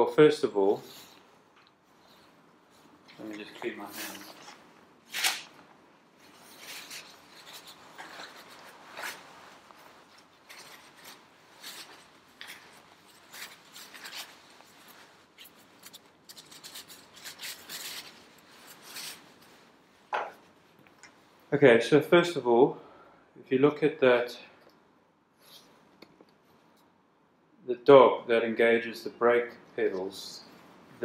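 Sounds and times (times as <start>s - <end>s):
paper towel rustling and scrubbing: 6.2s - 20.1s.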